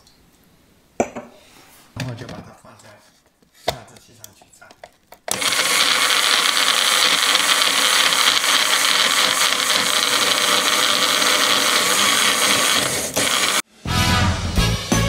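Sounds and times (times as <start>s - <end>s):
blender running: 5.3s - 13.7s.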